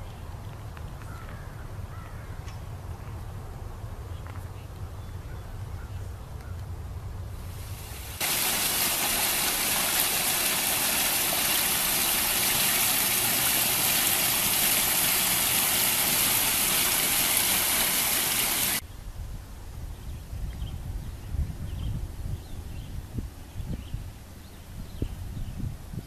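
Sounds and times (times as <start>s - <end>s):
fountain water splashing into pond: 7.4s - 18.8s.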